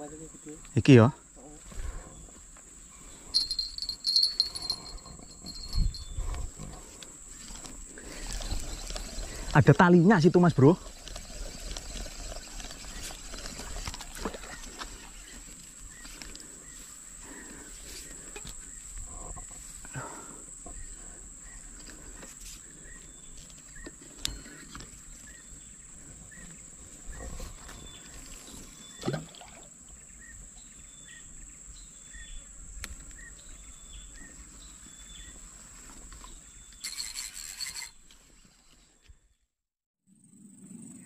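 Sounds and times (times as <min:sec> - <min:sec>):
high-pitched insect drone: 0:03.0 - 0:15.5, 0:36.8 - 0:38.0.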